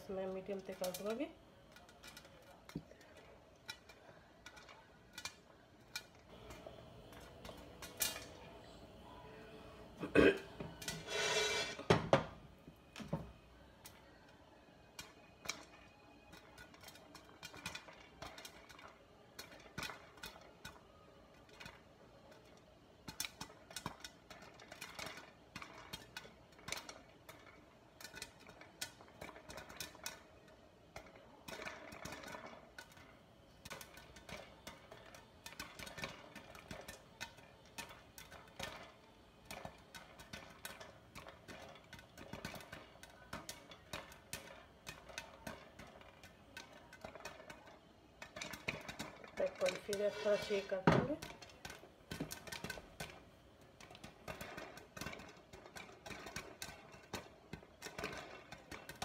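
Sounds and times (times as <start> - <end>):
popcorn popping in a pan: 0.0 - 59.0.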